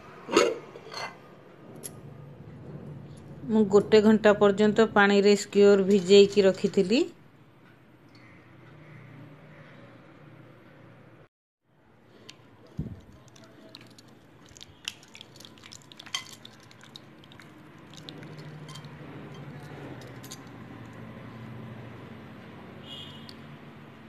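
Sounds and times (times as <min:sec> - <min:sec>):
hands squishing meat in marinade: 0:12.3 - 0:20.1.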